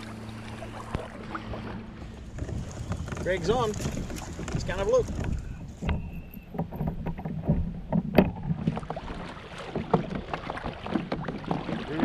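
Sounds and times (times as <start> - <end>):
low wind noise: 0.0 - 9.0
gear knocking on kayak hull: 2.0 - 12.0.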